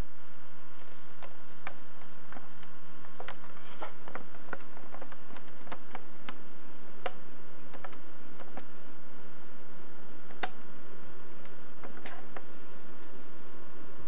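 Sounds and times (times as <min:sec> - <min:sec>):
electrical hum and hiss: 0:00.0 - 0:14.0
small clicks and ticks: 0:00.8 - 0:09.0, 0:10.2 - 0:10.7, 0:11.4 - 0:13.1.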